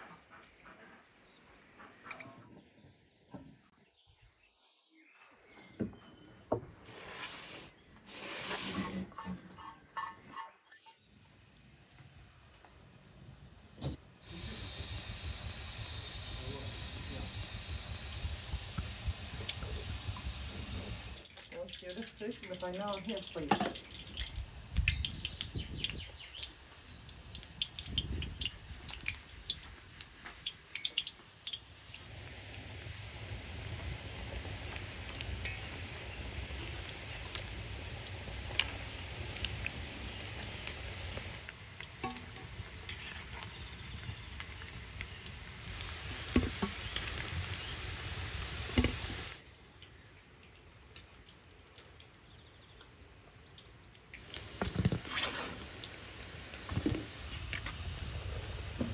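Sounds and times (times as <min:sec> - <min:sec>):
small birds chirping: 0:09.1 - 0:32.0, 0:34.1 - 0:54.1
meatballs frying in hot oil: 0:13.6 - 0:58.9.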